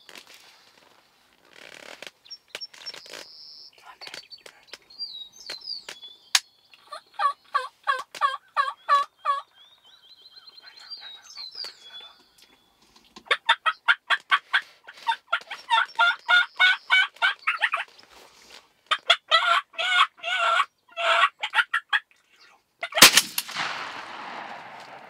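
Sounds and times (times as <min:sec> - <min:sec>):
turkey yelping: 0:06.9 - 0:09.5, 0:13.3 - 0:17.9, 0:18.9 - 0:22.1, 0:22.8 - 0:23.2.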